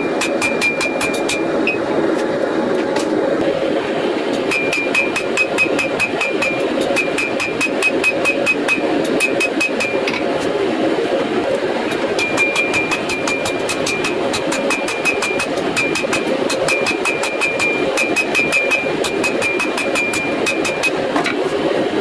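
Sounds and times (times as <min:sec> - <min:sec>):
hammer blows ringing on anvil: 0:00.0 - 0:01.8, 0:04.5 - 0:10.1, 0:12.2 - 0:21.0.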